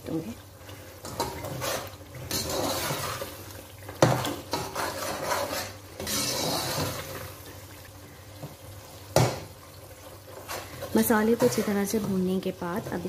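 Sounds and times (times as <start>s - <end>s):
spoon scraping in frying pan: 1.0s - 7.5s, 10.2s - 13.0s.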